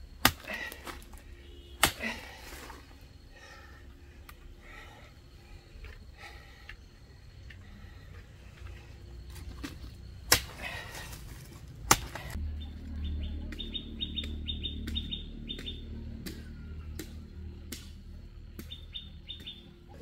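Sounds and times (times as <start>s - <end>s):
low steady hum: 0.0s - 20.0s
digging tool striking ground: 0.1s - 3.6s, 8.1s - 12.4s
bird chirping: 12.4s - 16.7s, 18.5s - 20.0s.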